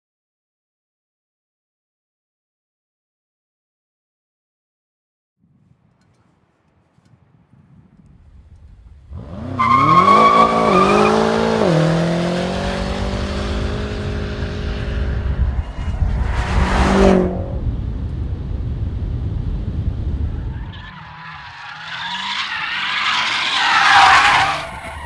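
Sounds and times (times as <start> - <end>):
car engine revving: 9.1 - 17.8
tyre squeal: 9.5 - 11.3, 20.7 - 25.0.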